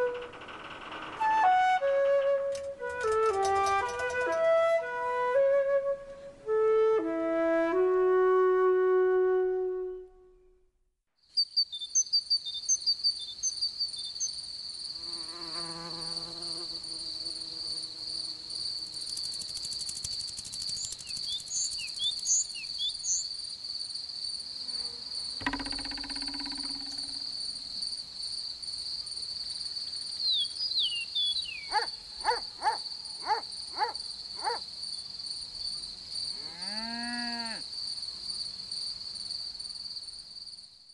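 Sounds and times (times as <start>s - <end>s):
insect chirring: 0.0s - 1.3s, 11.4s - 35.7s
flute melody: 1.2s - 10.7s
sharp ticks: 19.0s - 22.3s, 25.4s - 27.3s
wavering buzz: 25.4s - 27.5s.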